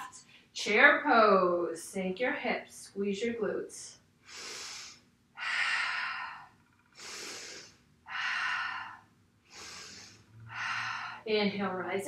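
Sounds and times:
woman breathing deeply: 4.2 - 11.3.

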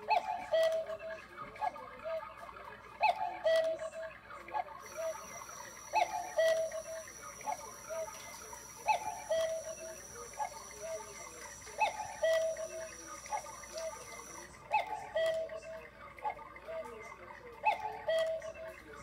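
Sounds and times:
electronic two-note cuckoo call: 4.8 - 15.6.

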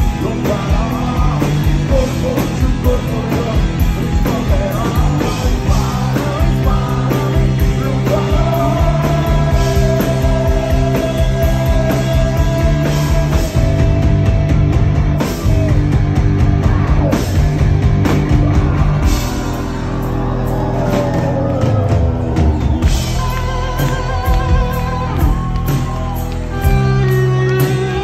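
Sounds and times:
rock band playing live: 0.0 - 28.0.

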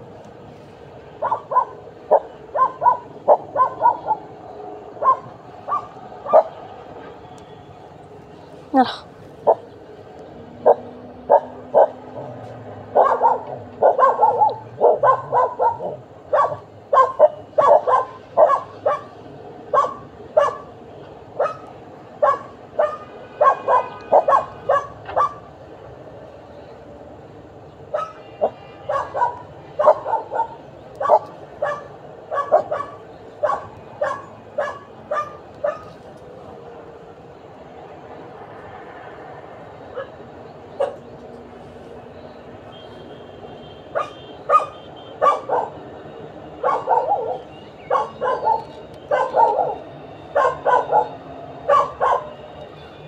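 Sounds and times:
dog barking and yipping: 1.2 - 4.3, 5.0 - 6.6, 10.6 - 20.8, 21.4 - 25.5, 27.9 - 36.0, 40.8 - 41.0, 43.9 - 45.8, 46.6 - 52.4.

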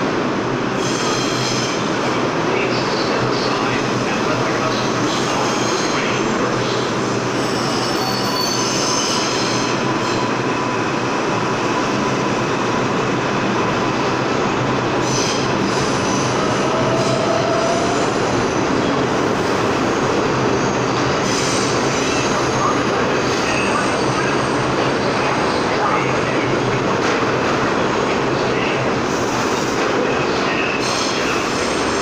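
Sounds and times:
train wheels rumbling on rails: 0.0 - 32.0.

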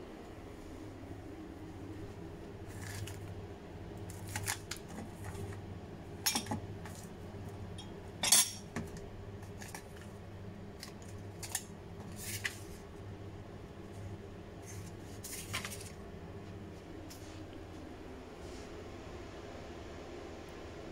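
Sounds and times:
steady low hum: 0.0 - 20.9.

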